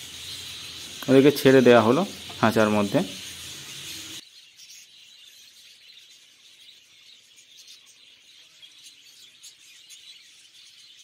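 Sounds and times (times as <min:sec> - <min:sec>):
steady high hiss: 0:00.0 - 0:05.0
zebra finches chirping: 0:00.0 - 0:11.0.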